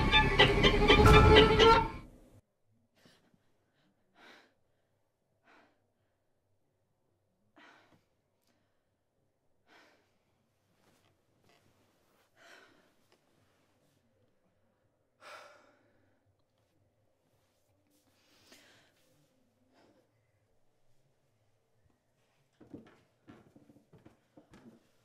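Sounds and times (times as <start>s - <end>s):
woman breathing and sighing: 7.5s - 8.9s, 9.6s - 11.1s, 12.0s - 13.8s.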